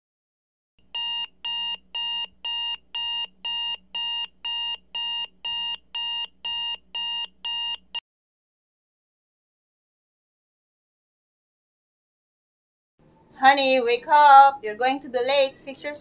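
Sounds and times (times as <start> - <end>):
phone alarm beeping: 0.9 - 8.0.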